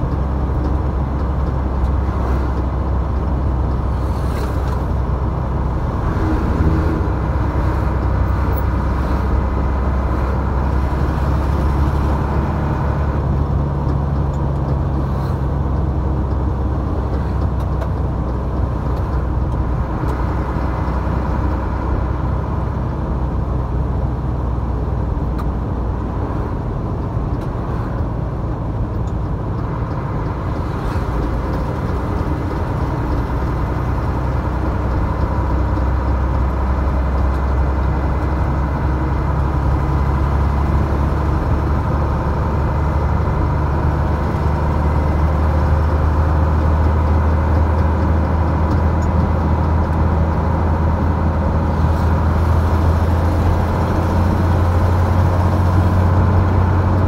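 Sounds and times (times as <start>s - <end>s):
vehicle engine and road noise: 0.0s - 57.0s.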